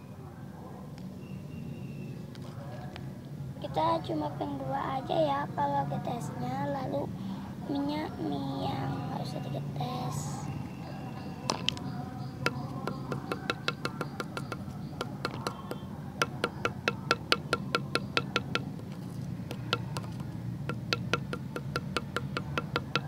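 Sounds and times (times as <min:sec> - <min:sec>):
knife chopping on wood: 0:12.4 - 0:23.0.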